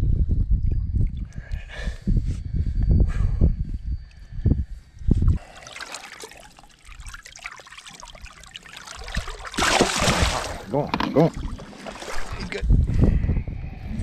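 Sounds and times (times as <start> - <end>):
water sloshing and trickling: 5.4 - 12.8.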